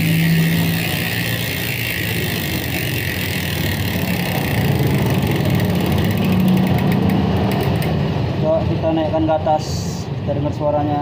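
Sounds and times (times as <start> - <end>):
bicycle hub ratchet buzzing: 0.0 - 8.0.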